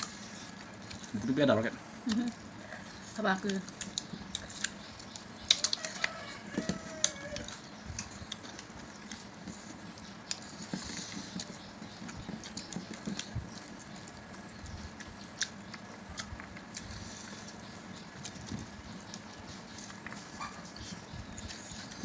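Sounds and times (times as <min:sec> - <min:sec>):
chewing and mouth clicks: 0:00.0 - 0:01.3, 0:02.0 - 0:22.0
fingers picking food on plates: 0:00.0 - 0:22.0.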